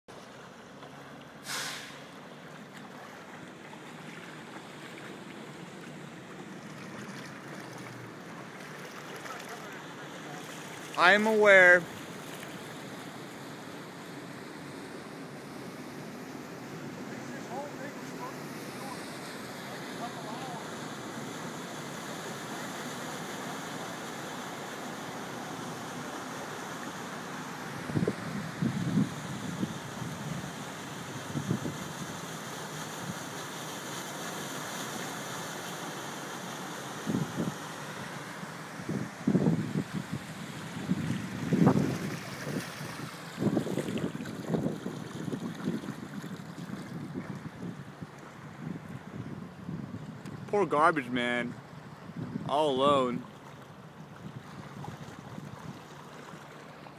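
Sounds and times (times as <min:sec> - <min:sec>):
floodwater rushing: 0:00.1 - 0:56.9
loud hiss: 0:01.4 - 0:02.0.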